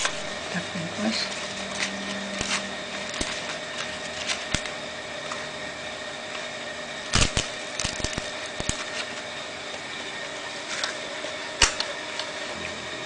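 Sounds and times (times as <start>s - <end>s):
leaf crackling and rustling: 0.0s - 5.5s
steady background hum: 0.0s - 13.0s.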